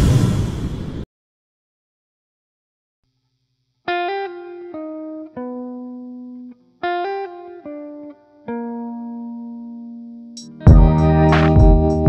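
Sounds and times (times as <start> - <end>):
plucked guitar notes: 3.9 - 12.0.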